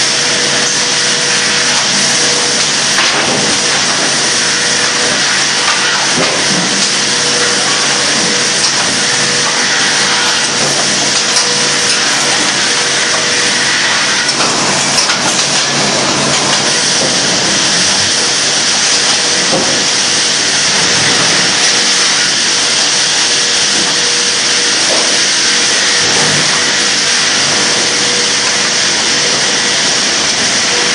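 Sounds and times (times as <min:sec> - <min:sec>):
lumber mill machinery din: 0:00.0 - 0:30.9.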